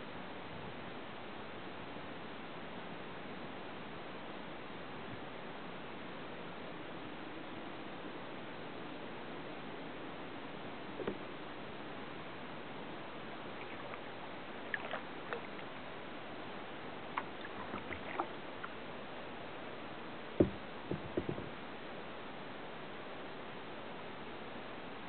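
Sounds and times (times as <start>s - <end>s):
paddle splashing and dripping: 13.4s - 16.0s, 17.0s - 18.9s
loud thump: 20.4s - 21.5s
small knocks: 20.4s - 21.5s.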